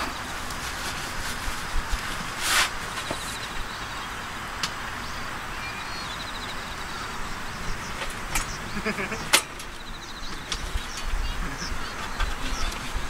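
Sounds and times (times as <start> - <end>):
outdoor background noise: 0.0 - 13.0.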